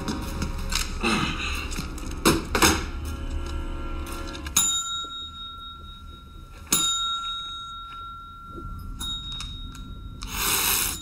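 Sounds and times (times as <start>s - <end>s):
service bell ringing: 4.5s - 11.0s
rush of hissing noise: 10.3s - 11.0s.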